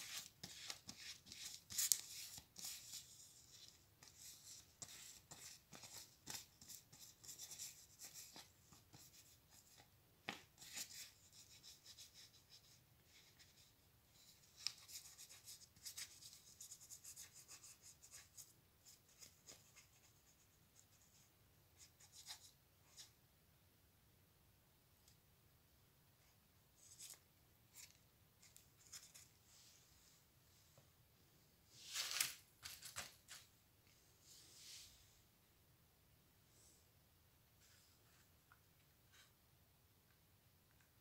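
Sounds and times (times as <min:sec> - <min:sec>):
paper rustling and crinkling: 0:31.8 - 0:33.5.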